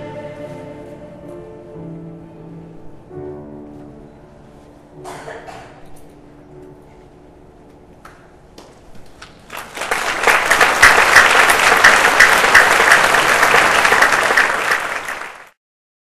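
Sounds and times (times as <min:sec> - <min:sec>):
audience applauding: 0:09.2 - 0:15.6.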